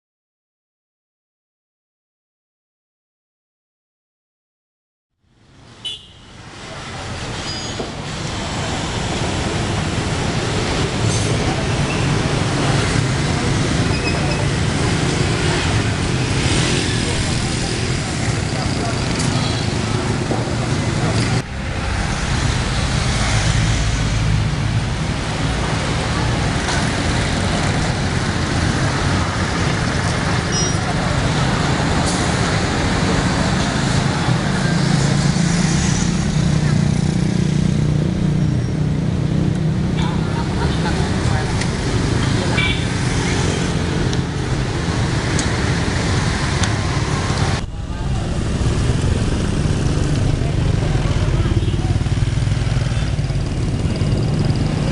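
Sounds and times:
motorbike engines passing: 0:05.9 - 0:54.9
car engines passing: 0:06.3 - 0:54.9
low engine hum: 0:46.5 - 0:54.9.

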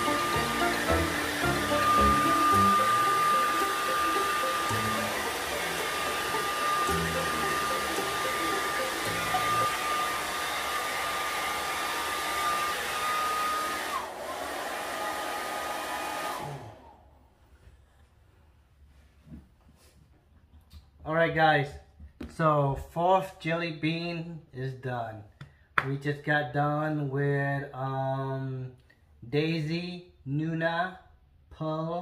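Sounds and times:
hair dryer blowing: 0:00.0 - 0:17.4.

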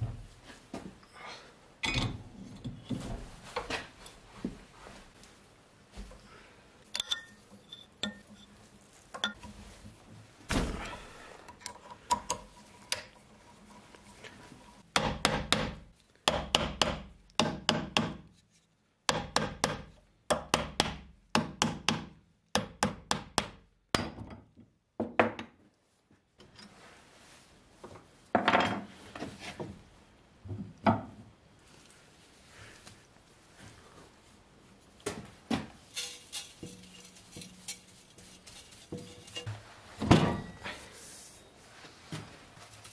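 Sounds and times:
metal rubbing: 0:35.9 - 0:39.6.

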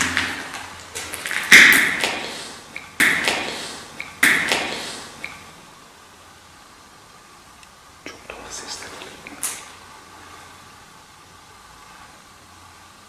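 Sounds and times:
loud echoing bangs: 0:00.0 - 0:05.2
person speaking: 0:08.0 - 0:09.8.

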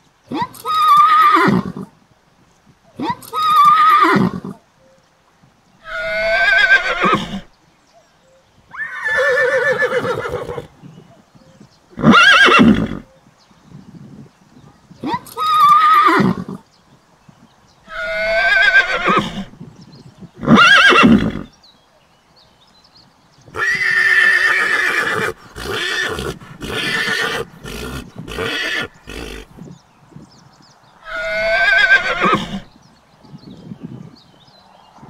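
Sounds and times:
colt whinnying: 0:05.8 - 0:07.5, 0:08.7 - 0:10.7, 0:12.0 - 0:13.1, 0:17.9 - 0:19.5, 0:20.4 - 0:21.5, 0:23.6 - 0:29.7, 0:31.0 - 0:32.7.

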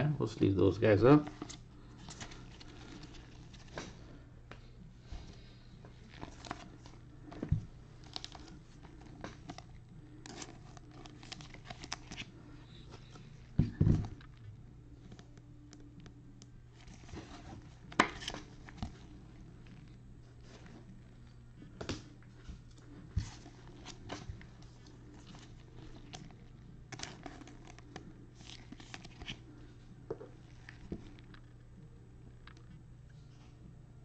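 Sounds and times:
plastic sleeves rustling: 0:00.7 - 0:16.0, 0:16.7 - 0:31.6.

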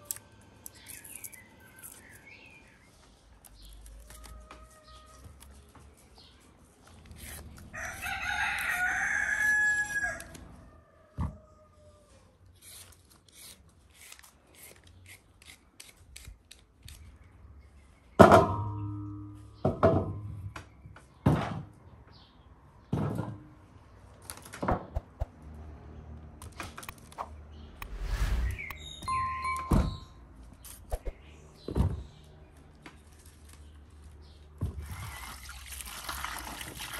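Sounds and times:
carrot being peeled: 0:06.9 - 0:08.9, 0:12.6 - 0:17.1
rooster crowing: 0:07.8 - 0:12.2.

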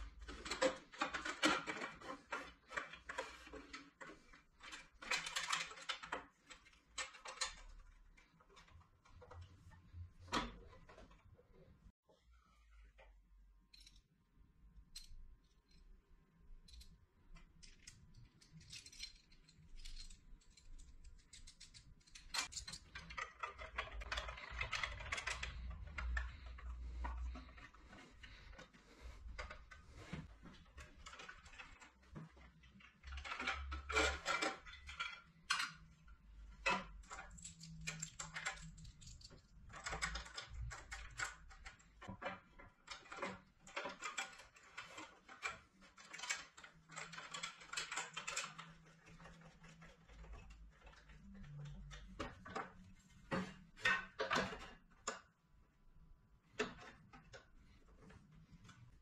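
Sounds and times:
metal parts clinking: 0:17.6 - 0:27.8.

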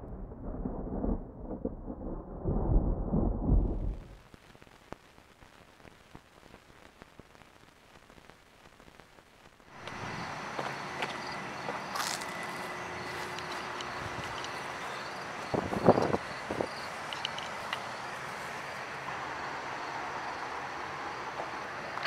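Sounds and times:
deep rolling rumble: 0:00.0 - 0:04.2
old film crackle: 0:04.1 - 0:10.0.

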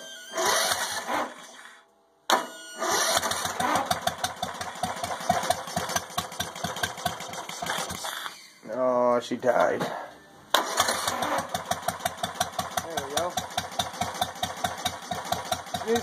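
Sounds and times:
engine cranking: 0:00.4 - 0:01.6, 0:02.8 - 0:08.5, 0:10.6 - 0:16.0.

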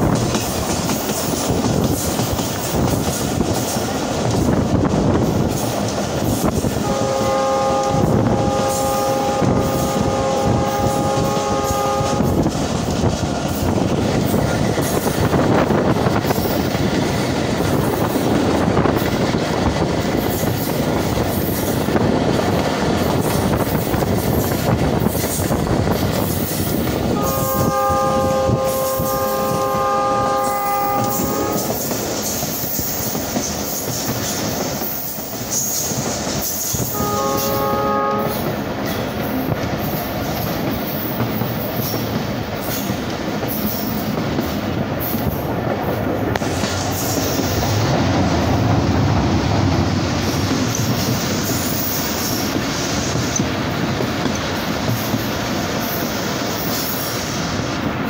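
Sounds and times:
train wheels rumbling on rails: 0:00.0 - 0:58.0
locomotive horn blasts: 0:06.8 - 0:12.5, 0:27.1 - 0:31.8, 0:36.9 - 0:38.5.

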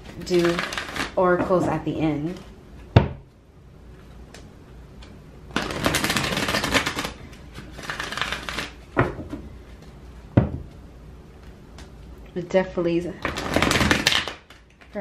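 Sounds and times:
cards being shuffled: 0:00.0 - 0:01.6, 0:05.0 - 0:09.0, 0:13.2 - 0:15.0.

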